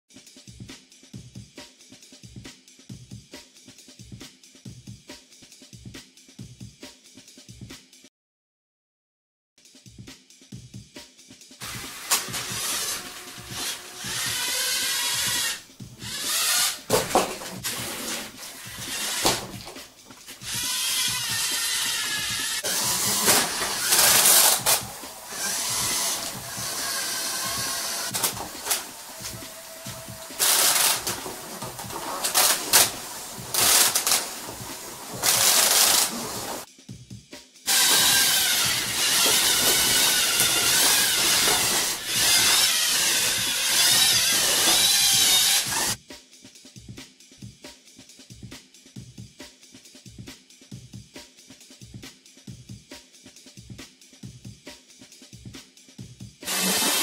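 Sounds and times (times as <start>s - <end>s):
small electric motors whirring: 11.6s - 16.9s, 17.6s - 19.5s, 20.4s - 36.7s, 37.7s - 46.0s, 56.5s - 57.0s.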